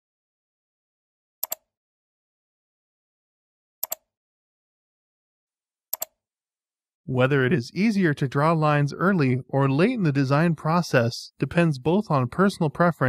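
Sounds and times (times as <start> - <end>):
computer mouse clicking: 1.4 - 1.7, 3.8 - 4.1, 5.9 - 6.2.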